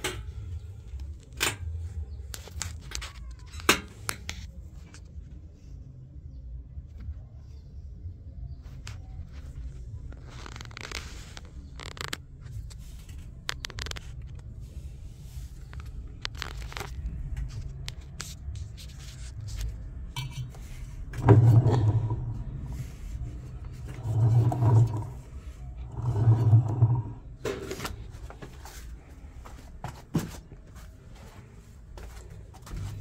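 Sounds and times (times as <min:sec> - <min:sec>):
plastic and metal parts scraping: 0:15.6 - 0:28.8.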